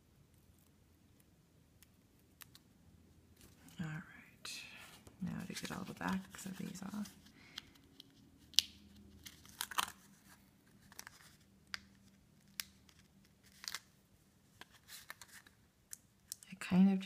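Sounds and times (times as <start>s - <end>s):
paper backing peeling snaps: 7.5s - 10.0s, 10.8s - 13.9s.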